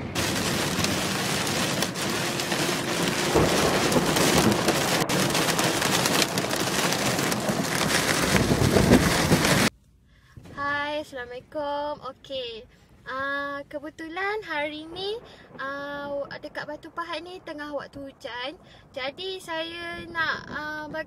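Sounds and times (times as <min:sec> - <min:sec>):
heavy rain on a car: 0:00.0 - 0:09.7.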